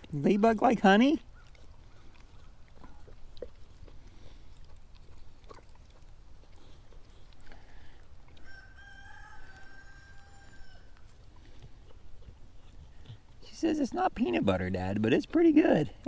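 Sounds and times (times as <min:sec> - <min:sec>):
rooster crowing: 0:08.4 - 0:11.0.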